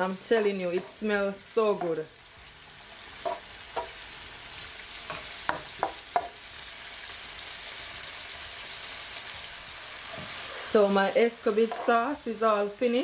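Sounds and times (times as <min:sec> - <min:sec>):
vegetables sizzling in a frying pan: 0:00.0 - 0:13.0
spatula scraping a pan: 0:00.6 - 0:01.2, 0:11.5 - 0:12.1.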